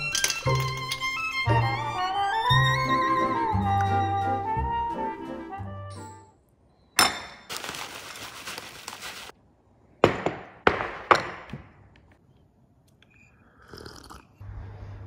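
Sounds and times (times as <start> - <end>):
crockery clinking: 0.0 - 1.5, 7.0 - 7.5.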